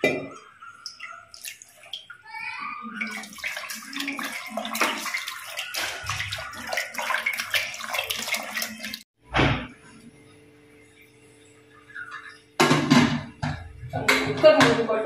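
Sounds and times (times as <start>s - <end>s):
wet splashing and squelching: 0.8s - 2.2s, 3.0s - 9.1s.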